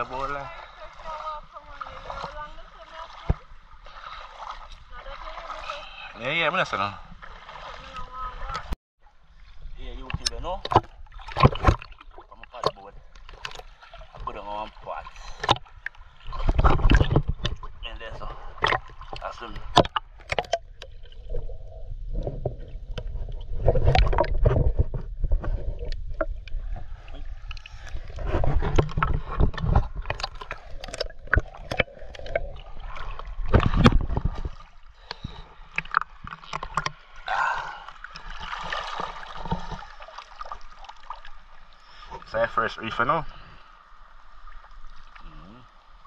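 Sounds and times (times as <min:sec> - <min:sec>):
water sloshing and gurgling: 0:00.0 - 0:46.0
hissing splashes: 0:30.1 - 0:42.1.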